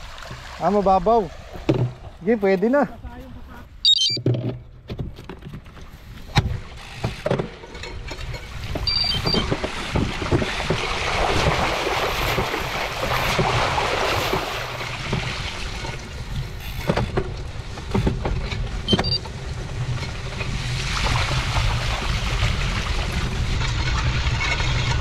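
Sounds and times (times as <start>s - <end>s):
bike tyres splashing through water: 0.0s - 2.4s, 8.4s - 17.9s, 18.6s - 25.0s
wind rumble on microphone: 4.5s - 25.0s.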